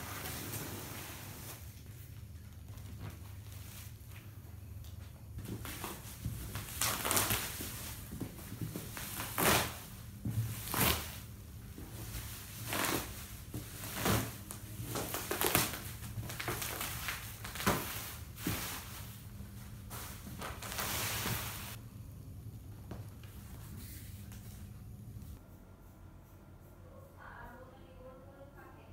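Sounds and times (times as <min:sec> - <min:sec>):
bubble wrap crinkling: 0:05.4 - 0:21.8.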